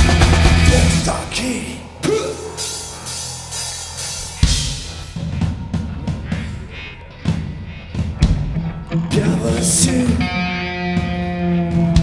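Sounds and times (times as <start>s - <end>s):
heavy drum hit: 0.0s - 1.1s
rock band playing: 0.0s - 12.0s.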